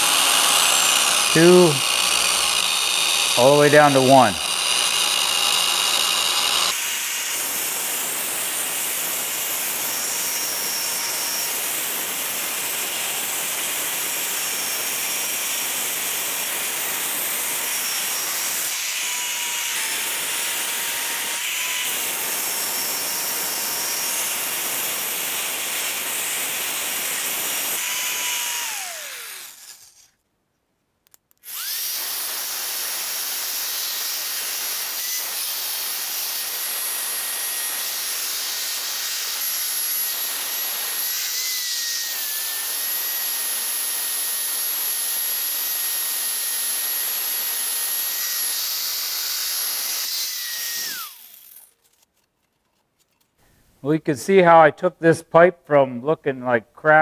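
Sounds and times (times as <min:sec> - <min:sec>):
belt sander motor whine: 0:00.0 - 0:07.4, 0:27.8 - 0:29.9, 0:50.0 - 0:51.6
belt grinding rust hiss: 0:29.4 - 0:30.2.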